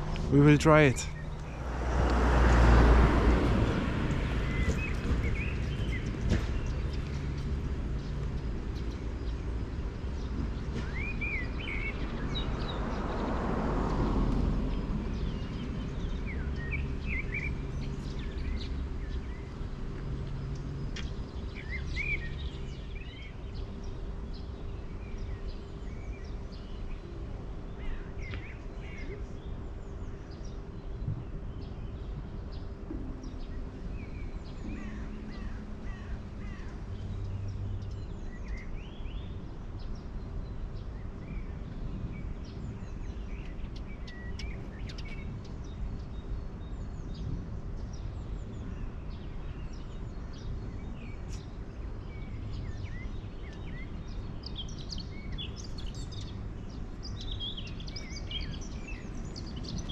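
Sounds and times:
small birds chirping: 0.0 - 1.8, 14.6 - 59.9
steady low rumble: 0.0 - 2.6.

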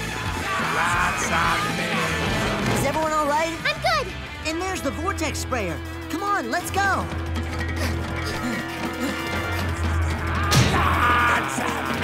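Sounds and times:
people yelling: 0.0 - 2.6, 9.8 - 12.0
loud background music: 0.0 - 12.0.

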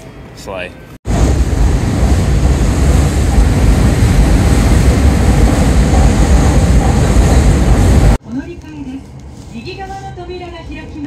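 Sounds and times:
train passing with rushing roar: 0.0 - 8.2.

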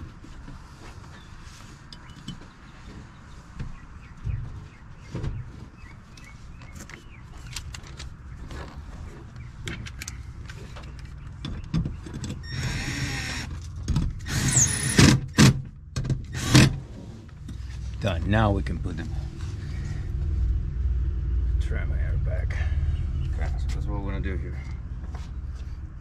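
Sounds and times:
clicks and knocks of parts handled: 6.8 - 12.4.

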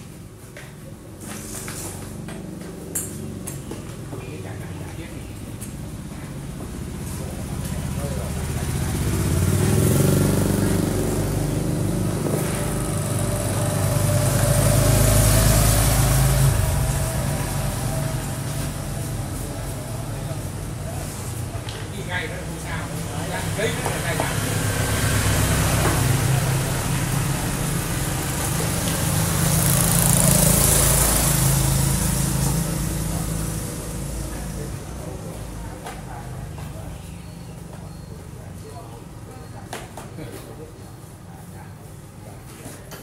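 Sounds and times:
street noise hiss: 0.0 - 43.0
motor scooter engine humming: 5.1 - 39.3.

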